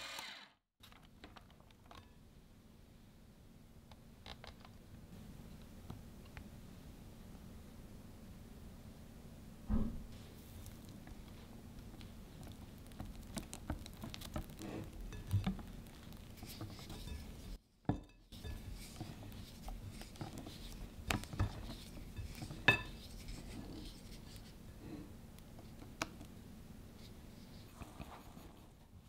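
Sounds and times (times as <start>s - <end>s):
soft wet mixing: 10.2s - 29.0s.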